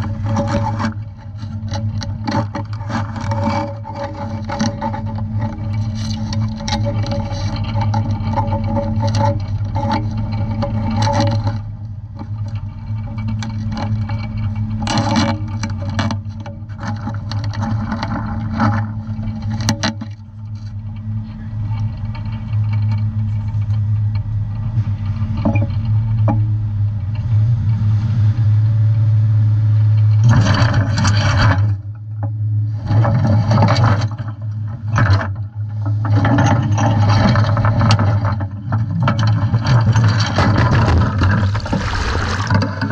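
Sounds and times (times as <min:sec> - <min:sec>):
boat engine drone: 0:00.0 - 0:42.9
steel dredge clanking and rattling: 0:35.0 - 0:42.9.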